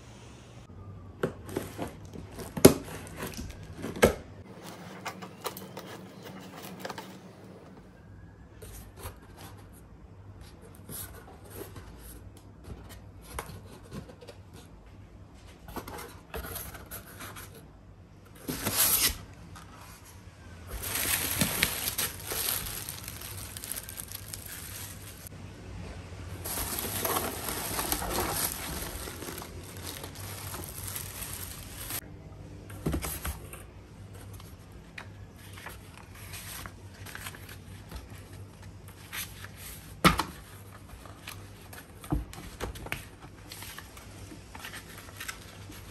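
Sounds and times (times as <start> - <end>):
plastic and paper crinkling: 19.7 - 25.3, 26.4 - 32.0.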